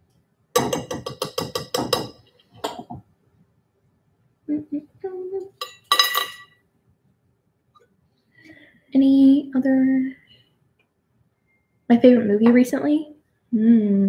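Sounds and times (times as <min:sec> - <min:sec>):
metal utensils clinking on dishes: 0:05.6 - 0:06.6.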